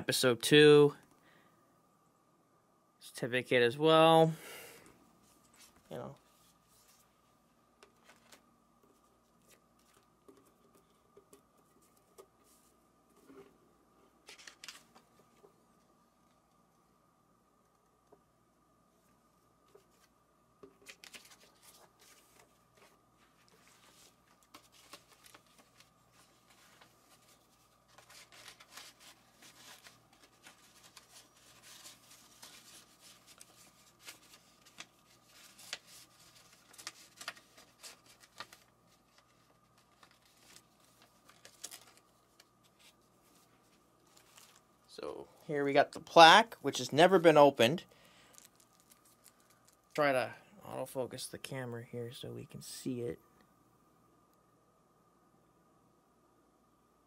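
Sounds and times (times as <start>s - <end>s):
packaging rustling and crinkling: 20.7s - 44.7s, 48.2s - 50.0s.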